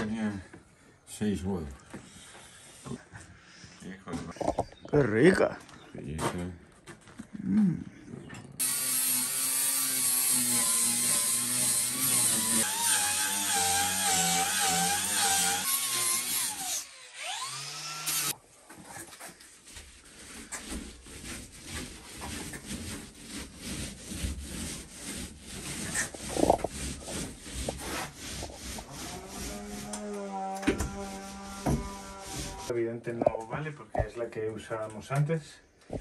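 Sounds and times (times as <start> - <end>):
hand tool rubbing on wood board: 18.8 - 32.7.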